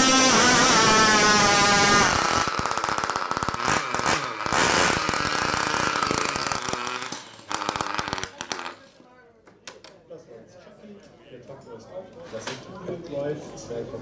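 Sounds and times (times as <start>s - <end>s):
small model engine idling: 0.0s - 9.0s.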